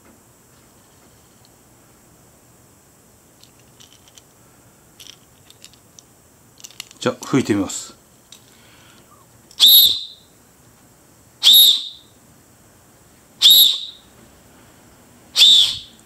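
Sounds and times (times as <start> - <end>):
shrill whistle blasts: 9.6 - 10.3, 11.4 - 12.2, 13.4 - 14.1, 15.3 - 16.0.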